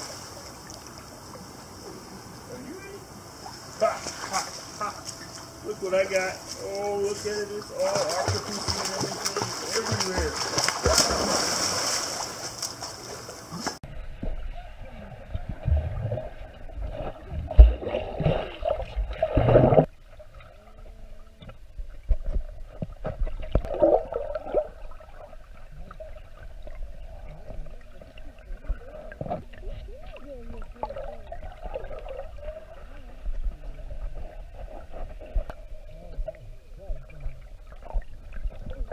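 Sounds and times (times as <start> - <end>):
muffled underwater water churning: 7.1 - 38.9
small knocks underwater: 21.4 - 24.7, 33.3 - 36.4.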